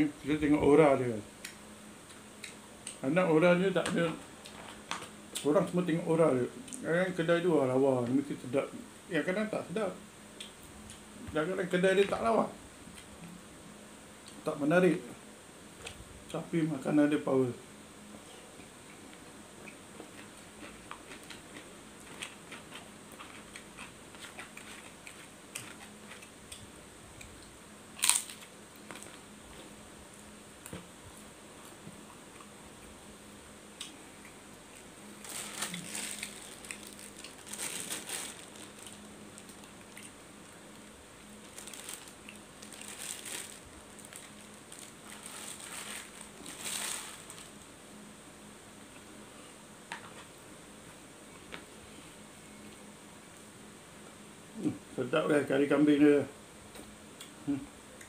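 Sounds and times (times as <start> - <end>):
quiet chewing: 18.2 - 33.0, 33.8 - 47.6
paper crinkling: 35.1 - 47.6.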